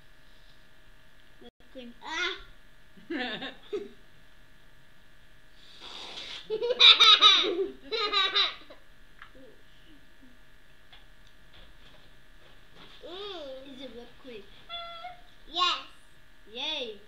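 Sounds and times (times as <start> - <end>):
young girl laughing loudly: 6.3 - 8.8.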